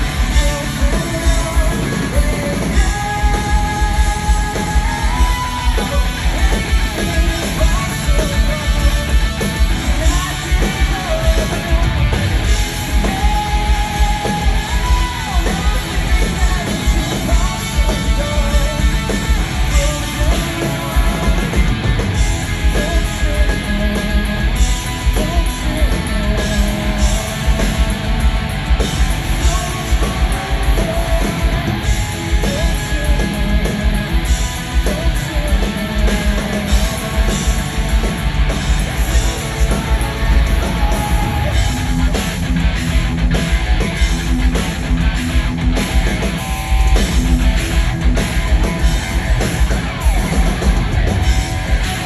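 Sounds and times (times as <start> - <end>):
live hard rock band: 0.0 - 52.0.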